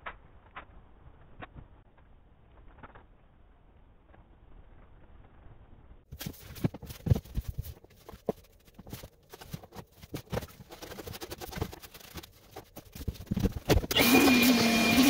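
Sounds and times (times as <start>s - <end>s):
scraper scraping wood: 6.2s - 15.0s
power tool motor running: 13.9s - 15.0s.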